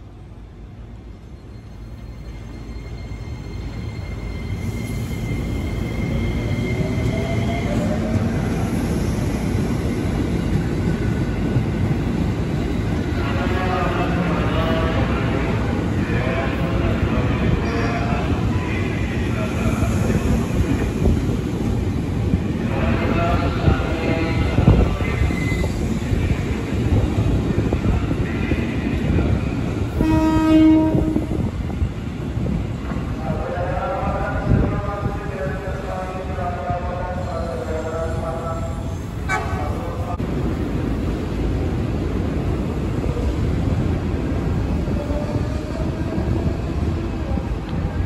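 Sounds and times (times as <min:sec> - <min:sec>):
train wheels rumbling on rails: 0:00.0 - 0:48.0
train horn: 0:30.0 - 0:31.4, 0:39.3 - 0:39.7.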